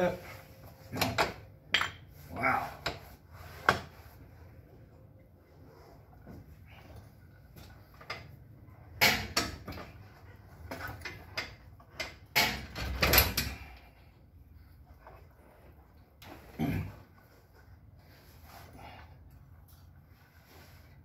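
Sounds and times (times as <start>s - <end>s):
metal clanks from tools: 1.0s - 2.1s.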